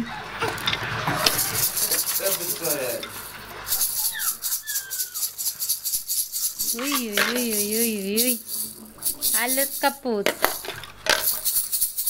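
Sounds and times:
plastic toy and clothes rustling: 0.3 - 12.0
baby rattle shaking: 1.1 - 12.0
baby cooing: 3.8 - 5.4, 6.6 - 7.6.

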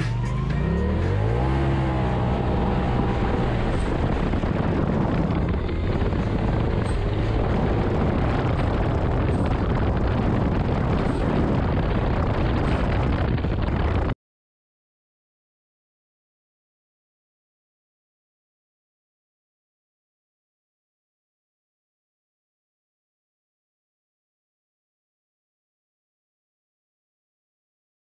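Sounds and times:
off-road vehicle engine revving: 0.0 - 14.1
noisy rush: 0.0 - 14.2.

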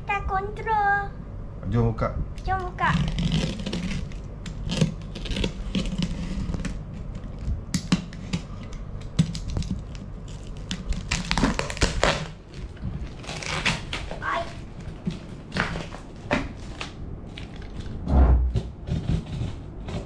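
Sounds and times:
plastic film crackling: 2.6 - 7.5, 9.0 - 18.0
plastic wrap ripping: 2.9 - 6.8, 9.3 - 17.9.

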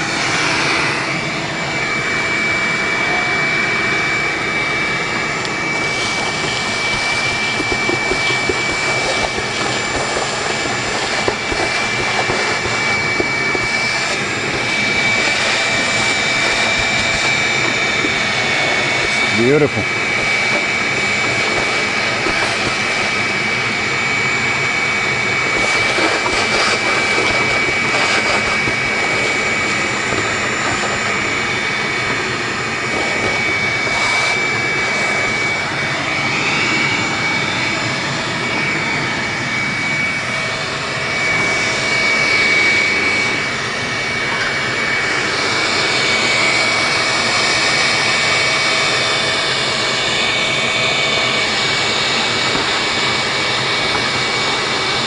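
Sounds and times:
vacuum motor whining: 0.0 - 55.0
rush of air: 5.6 - 40.2.

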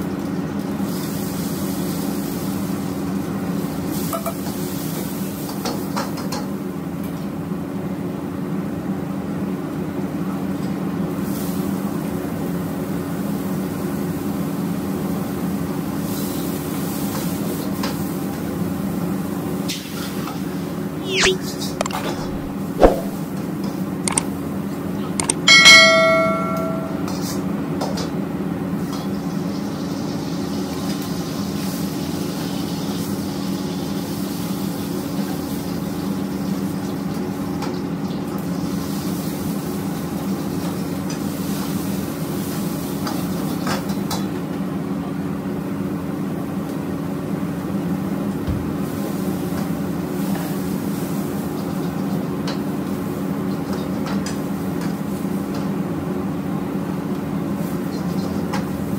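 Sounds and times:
metal ladle clanging on wok: 25.5 - 27.3.

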